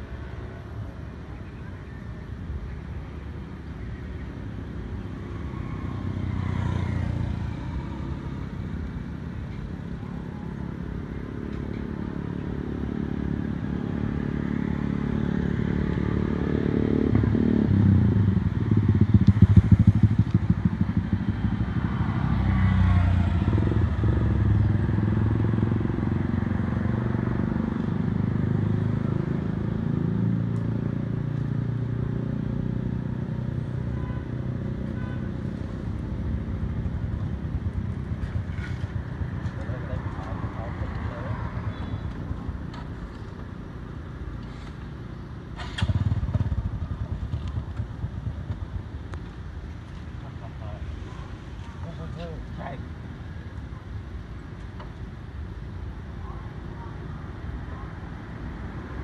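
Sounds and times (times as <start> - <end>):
vehicle engines passing: 0.0 - 59.0.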